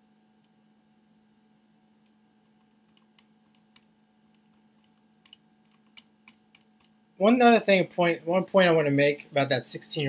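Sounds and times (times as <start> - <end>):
faint low hum: 0.0 - 10.0
faint computer clicks: 2.0 - 7.0.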